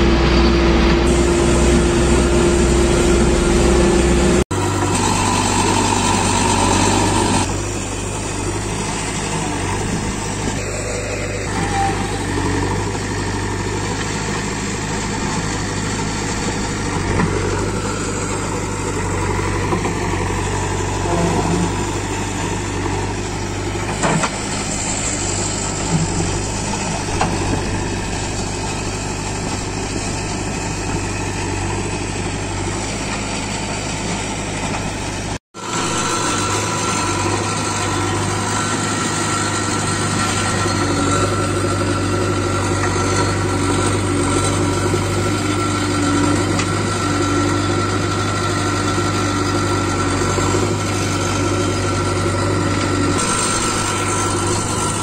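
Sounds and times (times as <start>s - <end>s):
diesel engine running under load: 0.0s - 55.0s
bucket pushing soil: 35.6s - 55.0s.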